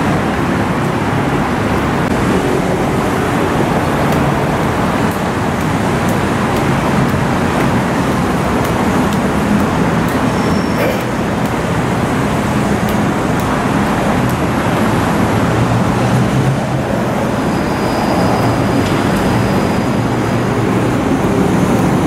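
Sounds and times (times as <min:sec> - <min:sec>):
continuous rushing noise: 0:00.0 - 0:22.0.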